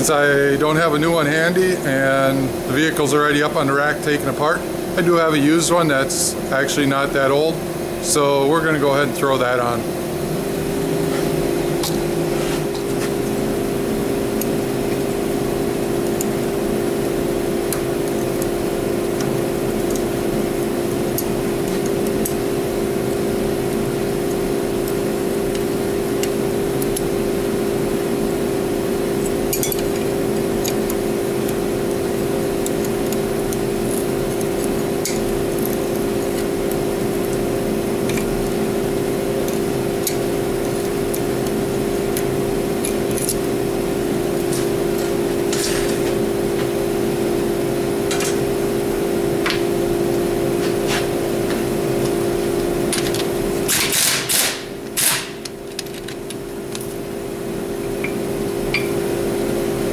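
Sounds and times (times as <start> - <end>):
shop hum: 0.0 - 59.9
power wrench bursts: 53.7 - 55.4.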